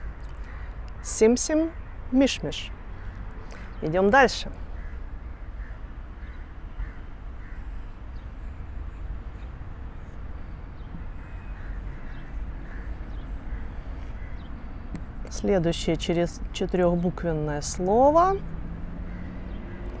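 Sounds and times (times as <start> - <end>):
low outdoor rumble: 0.0 - 20.0
marker squeaking on whiteboard: 8.2 - 10.4, 11.0 - 14.5.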